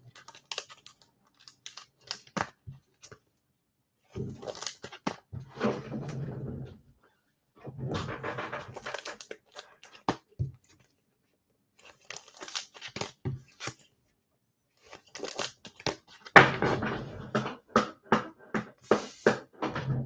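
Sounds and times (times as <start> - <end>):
plastic wrapping crinkling and tearing: 0.1 - 3.1, 4.4 - 5.2, 8.8 - 10.9, 11.8 - 13.9, 14.8 - 16.3.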